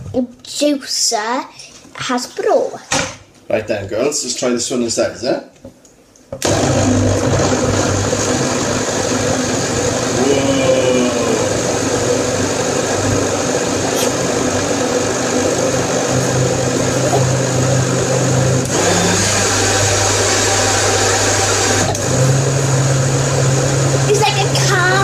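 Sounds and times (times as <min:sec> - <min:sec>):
blender motor whirring: 0:06.4 - 0:25.0.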